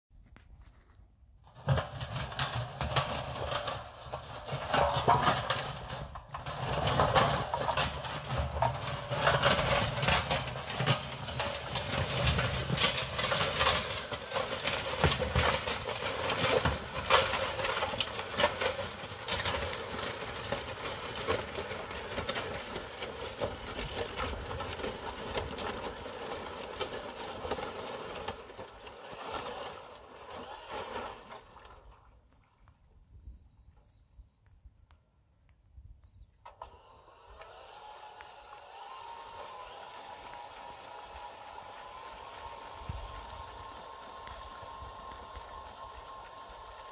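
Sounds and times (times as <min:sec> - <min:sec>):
crunching through wet gravel: 0:00.2 - 0:33.0, 0:37.3 - 0:46.9
motor and drive whine: 0:36.4 - 0:46.9.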